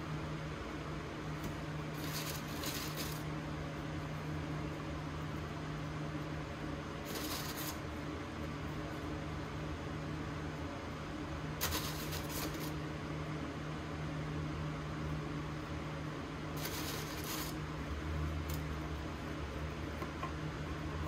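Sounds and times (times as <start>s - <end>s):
low appliance hum: 0.0s - 21.0s
paper wrapping crinkling: 2.0s - 3.2s.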